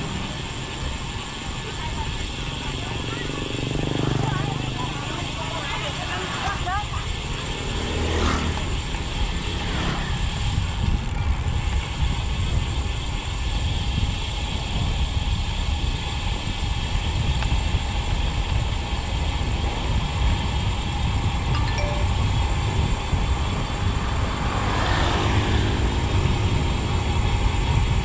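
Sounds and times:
motorbike passing: 0.0s - 12.7s, 18.8s - 28.0s
bicycle freehub buzzing: 0.0s - 21.5s, 22.2s - 28.0s
wind noise on microphone: 8.6s - 28.0s.

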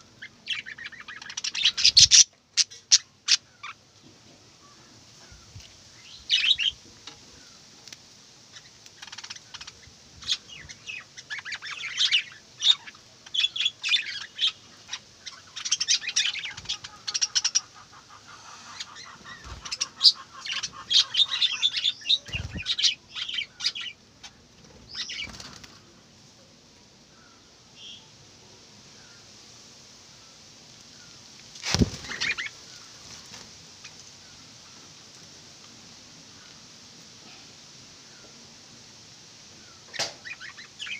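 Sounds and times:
budgerigars chirping: 0.2s - 3.8s, 9.0s - 24.0s.

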